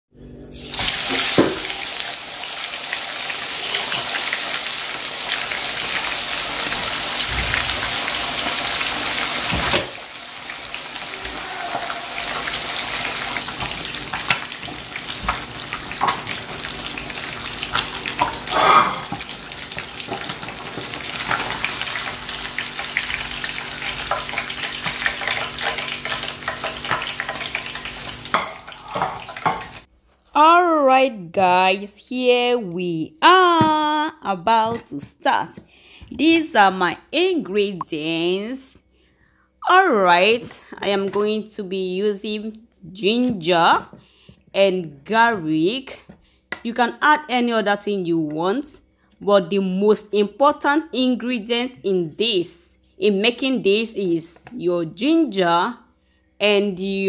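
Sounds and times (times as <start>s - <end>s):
fish sizzling in hot oil: 0.6s - 29.9s
oil crackles and pops: 0.7s - 18.5s, 19.1s - 29.9s.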